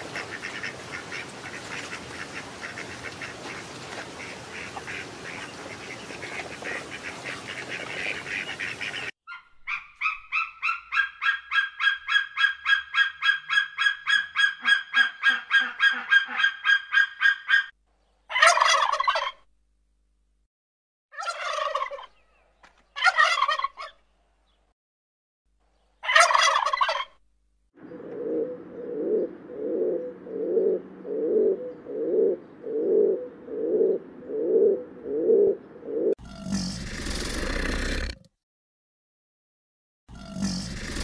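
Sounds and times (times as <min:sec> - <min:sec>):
animal calls: 0:07.7 - 0:17.7, 0:26.0 - 0:27.1
harsh loud animal sound: 0:36.2 - 0:38.2, 0:40.1 - 0:41.0.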